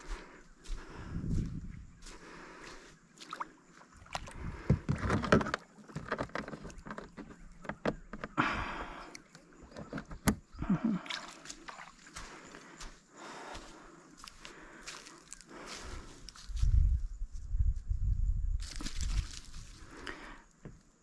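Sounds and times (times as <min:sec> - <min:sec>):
water sloshing around kayak: 0:03.0 - 0:12.6.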